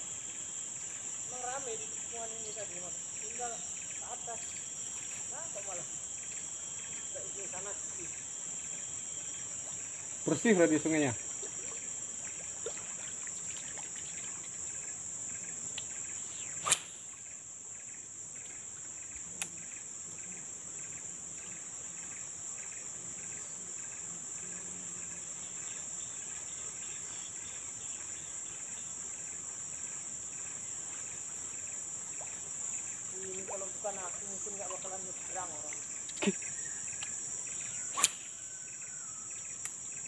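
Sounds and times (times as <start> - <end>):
insects droning: 0.0 - 40.0
sharp click: 16.6 - 17.0, 38.0 - 38.3.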